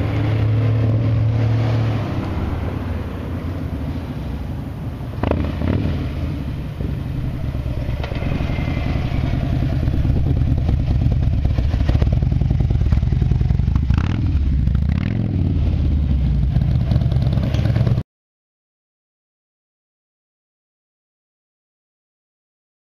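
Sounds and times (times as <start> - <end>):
motorcycle engine exhaust beat: 9.0 - 14.8.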